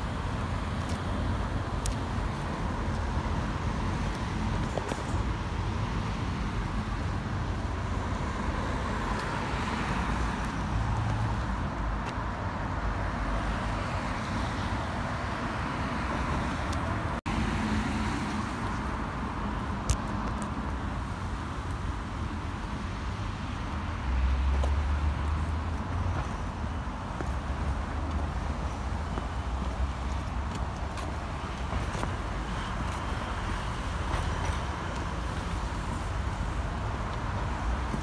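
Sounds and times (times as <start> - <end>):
road traffic: 0.0 - 38.0.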